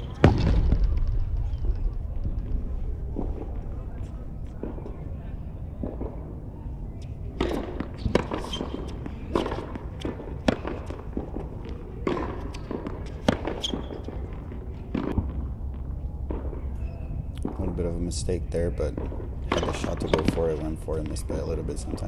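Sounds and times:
rackets striking tennis ball: 0:06.9 - 0:18.2, 0:18.8 - 0:22.0
ball bouncing: 0:07.4 - 0:16.8, 0:18.9 - 0:22.0.

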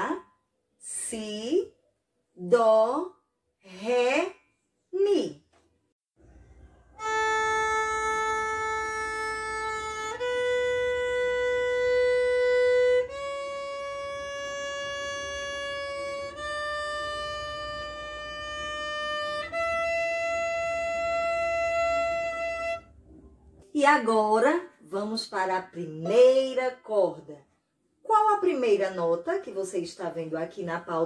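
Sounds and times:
violin long bowed notes: 0:07.0 - 0:22.9.

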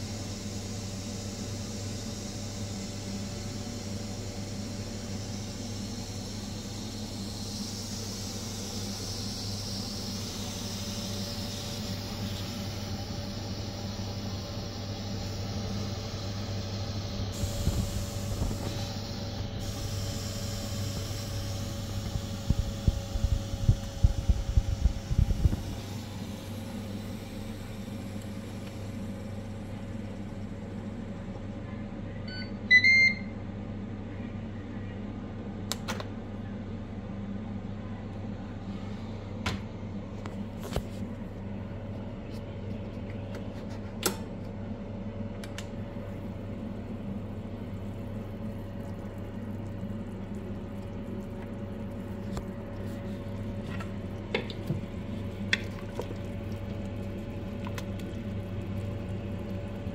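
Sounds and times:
multi-cooker humming: 0:00.0 - 0:59.9
short electronic beep: 0:32.3 - 0:33.3.

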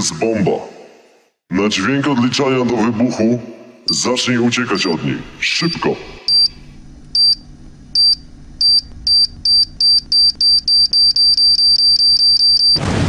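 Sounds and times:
high electronic beeps: 0:04.7 - 0:06.6, 0:07.2 - 0:07.4, 0:08.0 - 0:12.8
explosion: 0:12.8 - 0:13.0.

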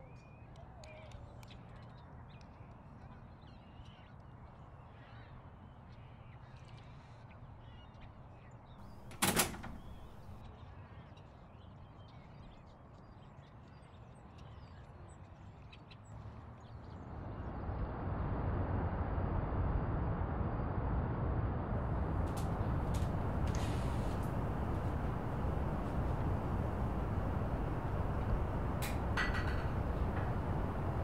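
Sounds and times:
door shutting: 0:08.8 - 0:10.4, 0:22.2 - 0:31.0
low rumbling noise: 0:17.6 - 0:31.0.

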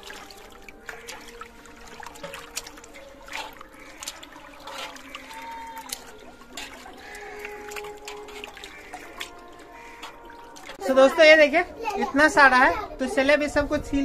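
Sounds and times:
hands swishing fruit in water: 0:00.0 - 0:10.9
small water splashes: 0:00.0 - 0:12.1
trickling water: 0:00.0 - 0:13.5.

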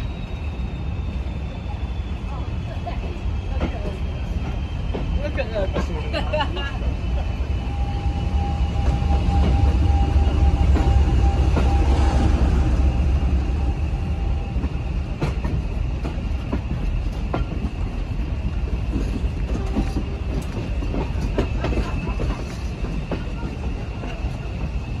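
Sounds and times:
steady high whistle: 0:00.0 - 0:02.6
diesel locomotive rumble: 0:00.0 - 0:25.0.

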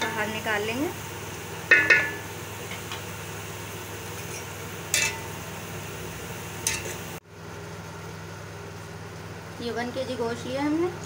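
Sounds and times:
utensil clinking on metal pot: 0:01.7 - 0:03.0, 0:04.2 - 0:05.3, 0:06.6 - 0:07.0.

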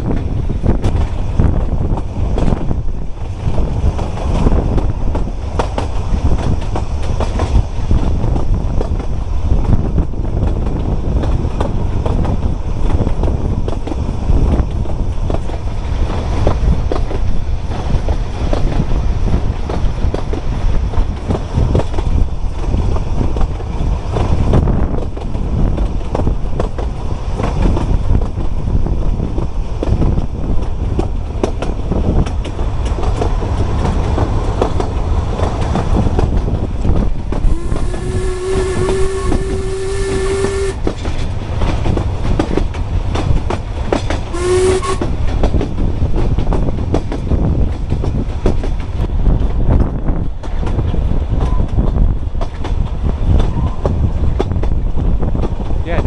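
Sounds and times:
train wheels rumbling and clicking: 0:00.0 - 0:56.0
steam locomotive whistle: 0:37.4 - 0:40.9, 0:44.3 - 0:45.1.

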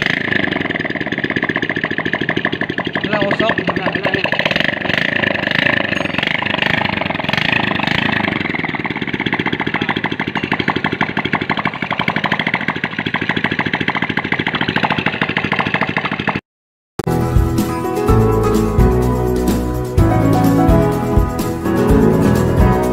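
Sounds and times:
motorcycle engine idling: 0:00.0 - 0:16.4.

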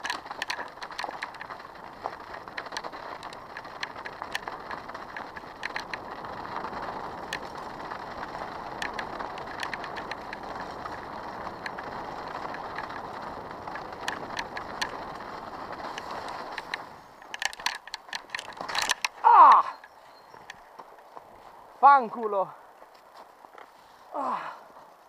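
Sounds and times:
bike clicks and rattles: 0:00.0 - 0:21.9
bicycle tyres on snow: 0:00.0 - 0:25.0
knocks and clicks: 0:15.8 - 0:19.7.

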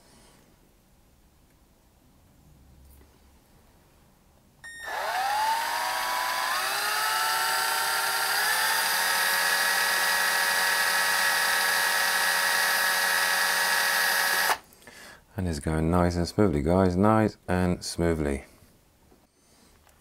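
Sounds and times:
electric drill motor whine: 0:04.7 - 0:14.6.

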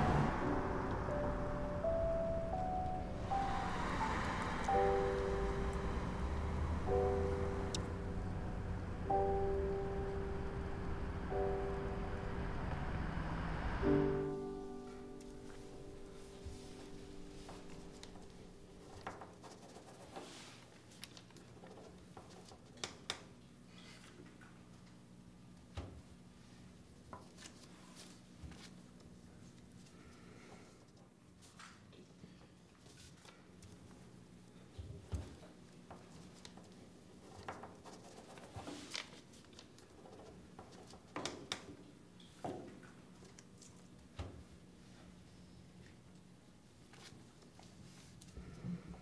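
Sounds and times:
low steady hum: 0:00.0 - 0:22.2
pens scratching on paper: 0:18.8 - 0:20.7, 0:37.2 - 0:39.2.

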